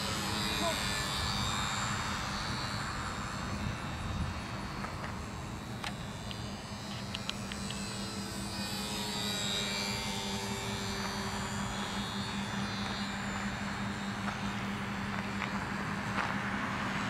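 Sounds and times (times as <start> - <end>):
model airplane motor whining: 0.0 - 17.0
steady low hum: 0.0 - 17.0.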